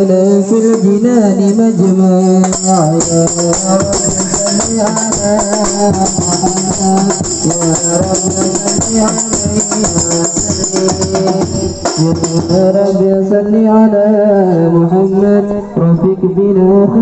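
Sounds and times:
man singing into a microphone: 0.0s - 17.0s
frame drums with jingles: 0.2s - 13.3s.

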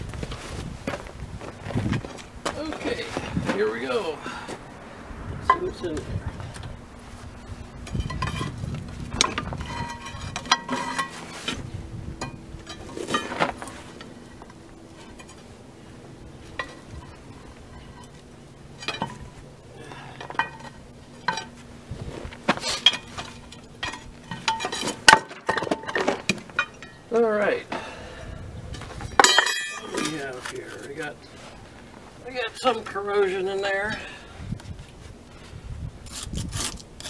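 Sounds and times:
pry bar clinking and scraping metal: 7.8s - 11.6s, 12.2s - 15.4s, 16.5s - 21.6s, 22.5s - 27.1s, 29.0s - 31.1s.

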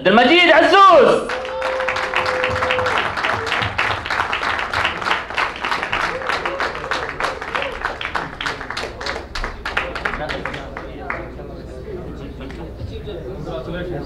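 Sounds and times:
crowd applauding: 1.0s - 11.5s.

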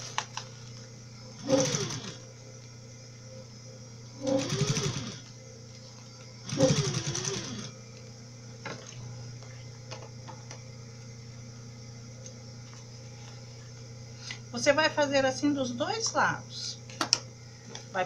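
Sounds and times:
low steady hum: 0.0s - 18.0s
electric sewing machine stitching: 1.4s - 2.2s, 4.2s - 5.3s, 6.4s - 7.7s.

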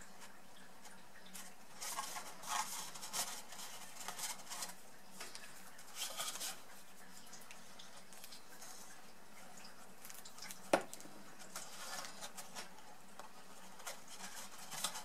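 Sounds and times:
cardstock rustling and scraping: 1.4s - 7.0s, 9.8s - 15.0s.

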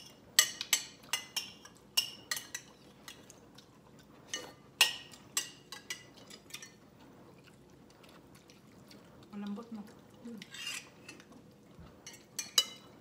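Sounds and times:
metal spoon clinking on ceramic bowl: 12.1s - 12.9s.

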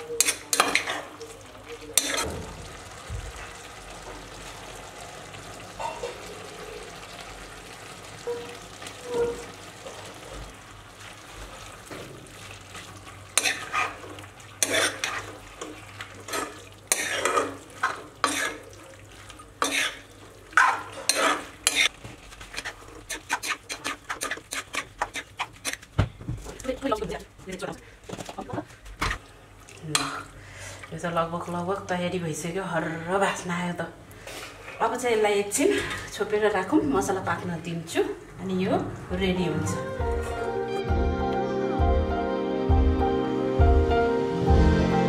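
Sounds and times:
food sizzling in a wok: 0.1s - 25.3s
spatula scraping pan: 2.0s - 2.3s, 8.3s - 10.1s, 13.4s - 18.7s, 19.6s - 25.9s.

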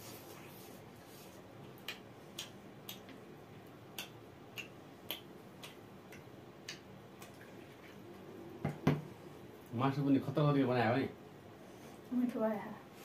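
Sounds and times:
people chewing with wet clicks: 1.6s - 8.2s.

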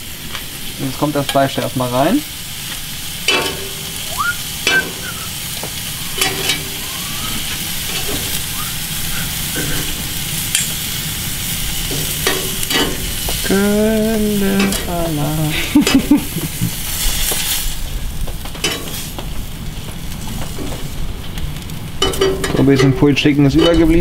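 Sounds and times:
chicken sizzling on grill: 0.0s - 24.0s.

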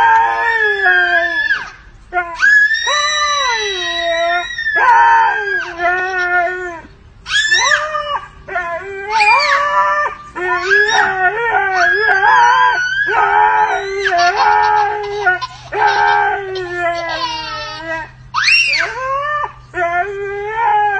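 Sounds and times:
toddler shrieking: 0.0s - 1.8s, 7.3s - 8.0s, 9.1s - 9.9s, 10.6s - 19.2s
husky howling: 0.0s - 20.9s.

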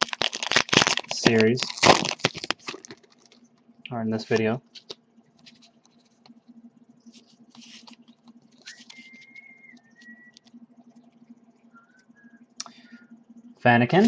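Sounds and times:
faint hum: 0.0s - 14.0s
trading cards shuffling: 7.1s - 10.6s
thin high tone: 7.1s - 13.2s.

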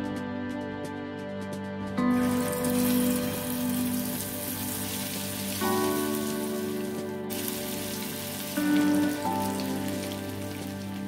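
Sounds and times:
background music with sustained notes: 0.0s - 11.0s
patties sizzling in hot oil: 2.2s - 11.0s.

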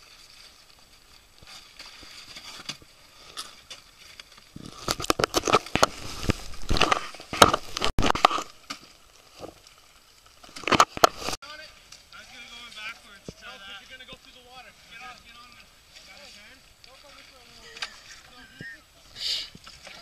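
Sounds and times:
plastic sleds scraping on ice: 1.4s - 9.6s.

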